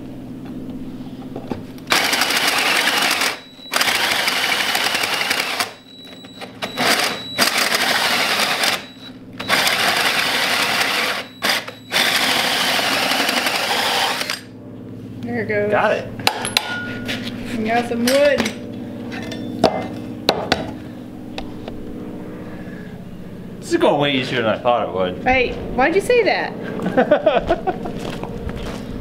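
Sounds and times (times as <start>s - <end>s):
drill running: 1.9s - 14.5s
hole saw grinding through steel: 6.6s - 14.5s
thin high whine: 14.4s - 25.2s.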